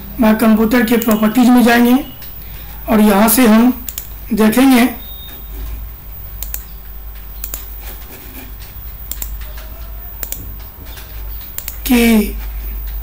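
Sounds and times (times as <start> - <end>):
low steady hum: 0.0 - 13.0
computer mouse clicks: 0.9 - 1.3, 3.8 - 4.2, 6.3 - 13.0.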